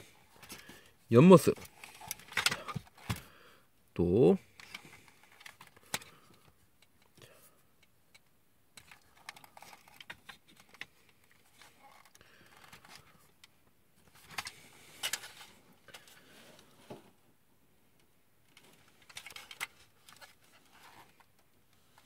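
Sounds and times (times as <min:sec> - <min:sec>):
plastic toy parts clicking: 0:01.9 - 0:03.2.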